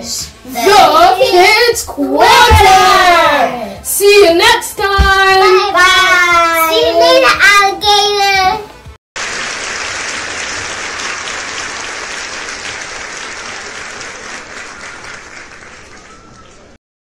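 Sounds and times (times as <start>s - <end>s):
crowd applause: 9.2s - 16.8s.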